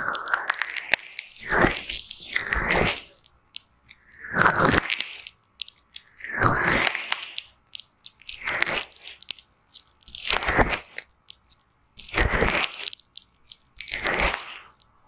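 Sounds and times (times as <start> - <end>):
foam crackling against microphone: 0.0 - 3.2
small pops: 0.0 - 15.0.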